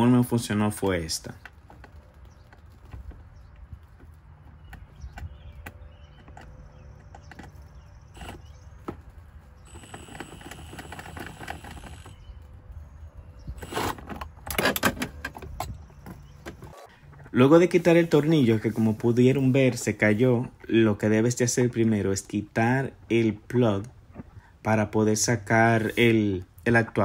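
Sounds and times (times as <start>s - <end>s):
cordless drill motor whining: 8.1s - 8.6s, 9.6s - 12.4s, 13.5s - 14.2s.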